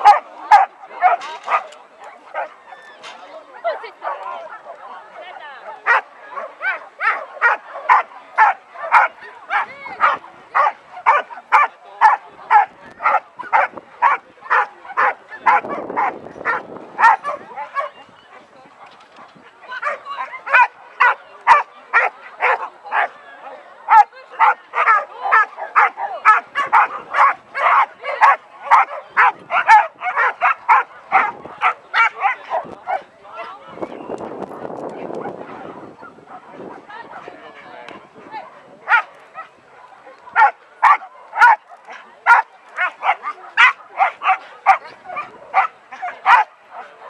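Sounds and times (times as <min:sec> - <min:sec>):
dog barking rapidly: 0:23.9 - 0:32.2, 0:40.4 - 0:41.6, 0:42.3 - 0:46.5.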